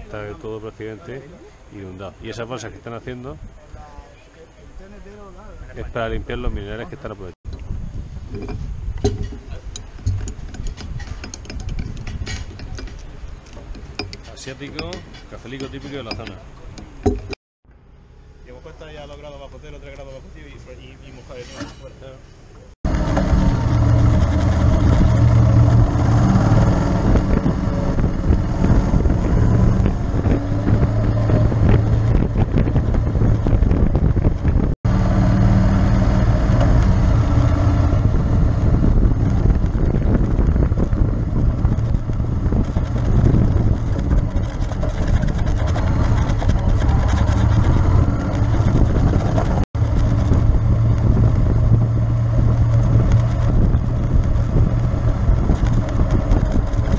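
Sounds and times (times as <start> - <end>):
wind buffeting microphone: 5.5 - 17.4, 22.9 - 56.9
motorcycle engine cruising: 22.6 - 56.9.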